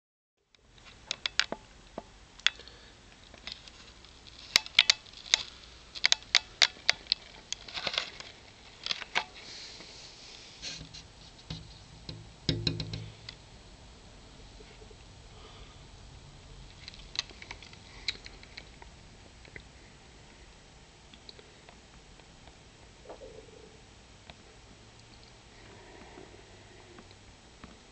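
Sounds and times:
sharp light clicks and ticks: 0:00.5 - 0:09.3, 0:16.7 - 0:19.7, 0:21.1 - 0:22.6, 0:24.2 - 0:25.4.

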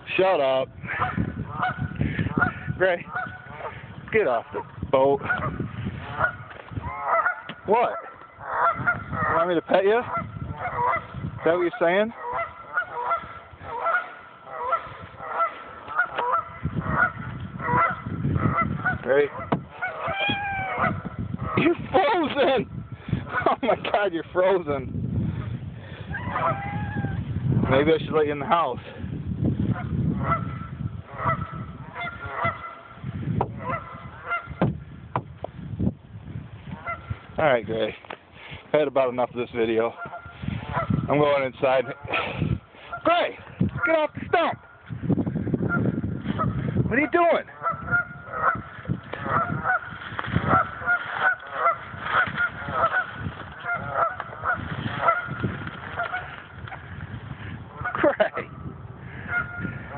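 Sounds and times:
geese honking: 0:00.8 - 0:04.6, 0:05.2 - 0:22.5, 0:23.2 - 0:23.8, 0:26.1 - 0:27.9, 0:29.7 - 0:34.6, 0:36.7 - 0:37.2, 0:39.9 - 0:42.1, 0:42.8 - 0:44.9, 0:45.6 - 0:57.0, 0:57.7 - 0:58.3, 0:59.1 - 0:59.9.

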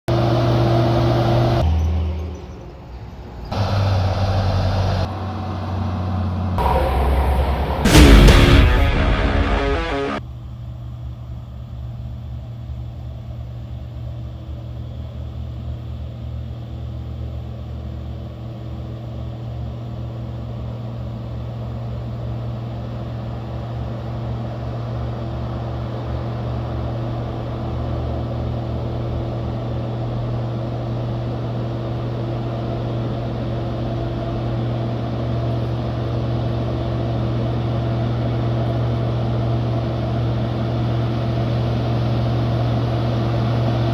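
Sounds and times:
truck diesel engine running: 0:00.1 - 0:10.2.

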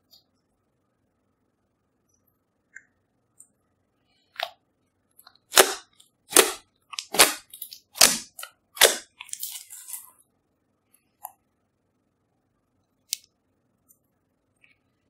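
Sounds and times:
slime popping: 0:05.5 - 0:10.0.

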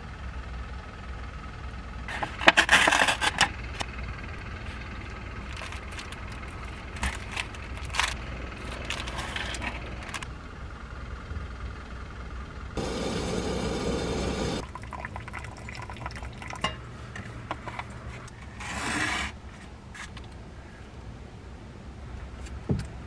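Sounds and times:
low hum: 0:03.4 - 0:18.4
plastic and foil packaging crinkling: 0:05.4 - 0:10.2.

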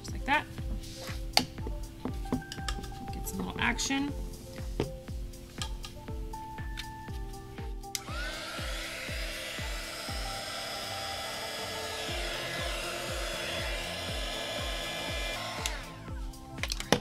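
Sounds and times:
background music with a beat: 0:00.0 - 0:17.0
heat gun blowing air: 0:08.0 - 0:16.5.

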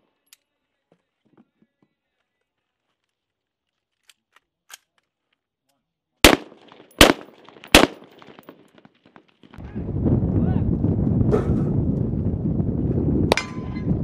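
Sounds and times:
rifle shots: 0:06.2 - 0:08.6.

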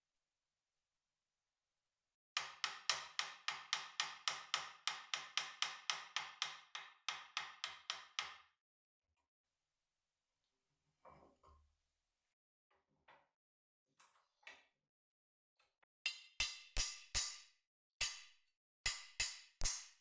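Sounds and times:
hammer tapping on metal: 0:02.4 - 0:08.4.

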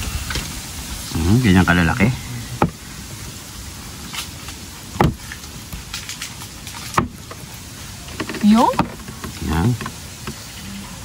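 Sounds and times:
faint hiss: 0:00.0 - 0:11.0
cleaver thudding on wooden board: 0:05.0 - 0:05.2.

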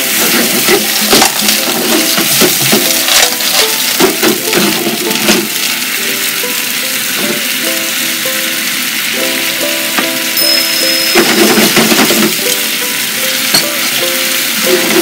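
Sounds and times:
clams clattering in a frying pan: 0:00.0 - 0:15.0
light background music: 0:00.0 - 0:15.0
steady sizzle: 0:00.0 - 0:15.0.

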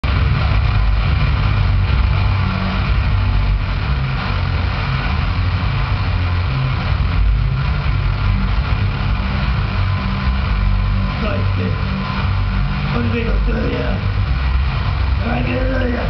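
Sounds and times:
distorted bass guitar drone: 0:00.0 - 0:16.0.

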